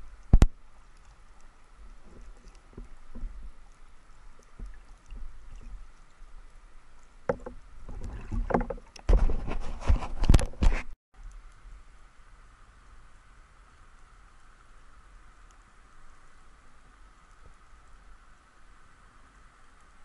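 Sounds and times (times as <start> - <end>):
faint water hiss: 0.0 - 20.0
underwater knocks and scrapes: 1.8 - 6.0, 7.2 - 11.0.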